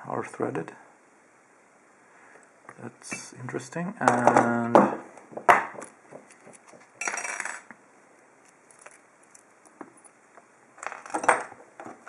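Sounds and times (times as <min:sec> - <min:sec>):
keys clinking and jingling: 0:08.4 - 0:10.2.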